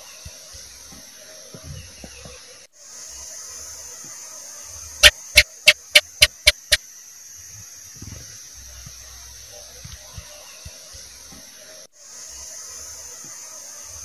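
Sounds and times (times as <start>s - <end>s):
steady hiss: 0.0s - 14.0s
gecko chirping: 5.0s - 6.8s.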